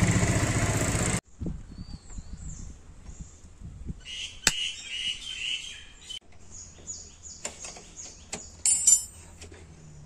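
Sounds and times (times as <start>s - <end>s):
birds chirping: 1.3s - 9.0s
metal tools clinking: 8.6s - 9.5s.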